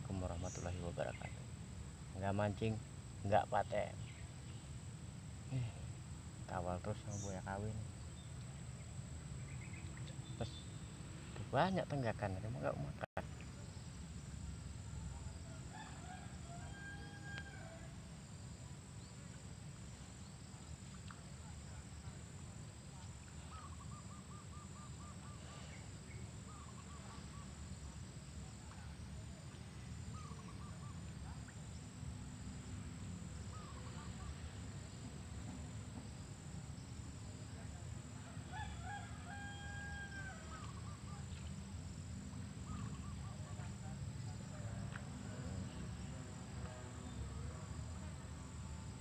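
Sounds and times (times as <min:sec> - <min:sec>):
loud layered bird call: 0:23.4 - 0:27.6, 0:30.1 - 0:31.6, 0:33.4 - 0:34.6, 0:38.4 - 0:41.5, 0:42.6 - 0:43.6.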